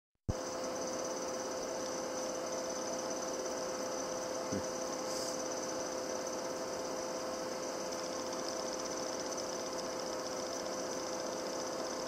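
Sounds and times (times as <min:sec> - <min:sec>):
electrical hum and whine: 0:00.3 - 0:12.0
brief hiss: 0:05.0 - 0:05.4.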